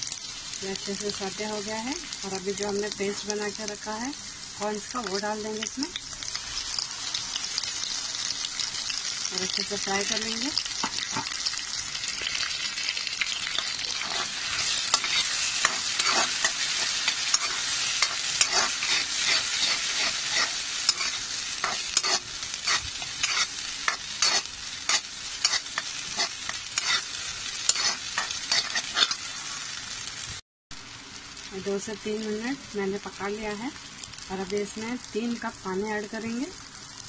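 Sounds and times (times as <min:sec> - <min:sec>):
food sizzling in oil: 0:00.0 - 0:37.0
spatula scraping a pan: 0:13.4 - 0:29.6.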